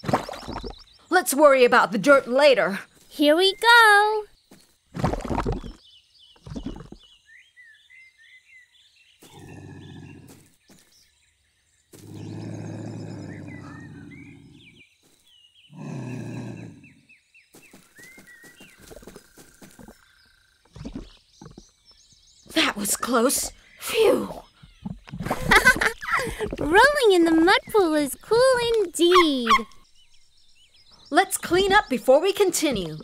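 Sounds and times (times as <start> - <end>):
birds chirping: 0.0 - 33.0
cartoon lynx growling low: 9.3 - 10.3, 12.0 - 14.8, 15.7 - 17.0.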